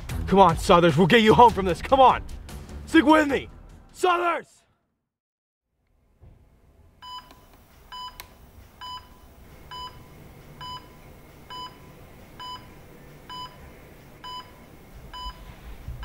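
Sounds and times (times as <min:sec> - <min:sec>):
low room hum: 0:05.8 - 0:16.0
heart monitor beeping: 0:07.0 - 0:08.2, 0:08.8 - 0:16.0.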